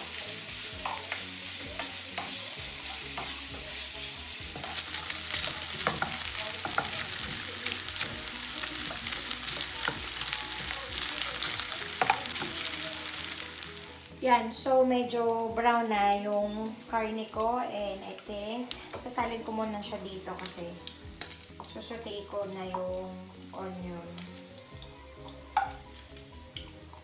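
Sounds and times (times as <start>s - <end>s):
meat sizzling and crackling: 0.0s - 27.0s
wooden spoon stirring: 4.5s - 14.0s.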